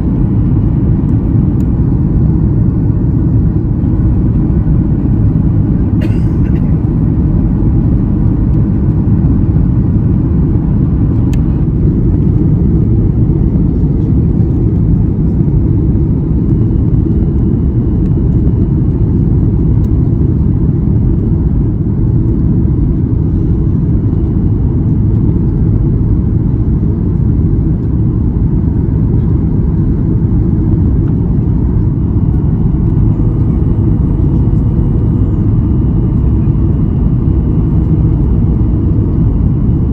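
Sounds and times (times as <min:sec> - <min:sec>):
jet engine rumble in cabin: 0:00.0 - 0:39.9.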